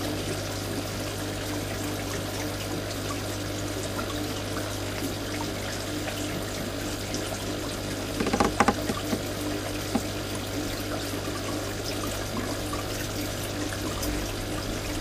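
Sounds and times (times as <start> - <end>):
water trickling and splashing: 0.0 - 15.0.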